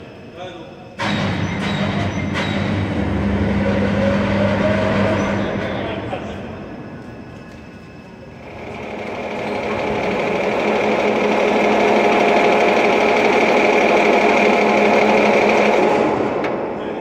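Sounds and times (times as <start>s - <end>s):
locomotive drive humming and whining: 0.9s - 17.0s.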